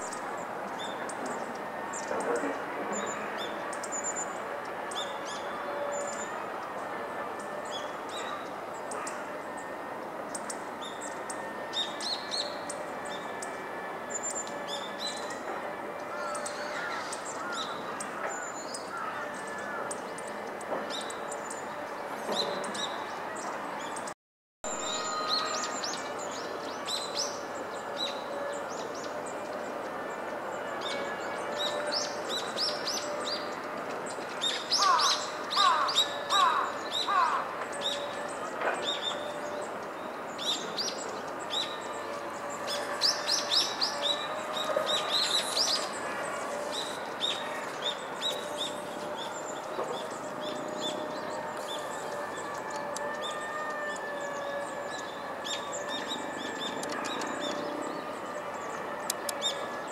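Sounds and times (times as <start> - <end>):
bird calling sharp high calls: 34.4 - 39.6.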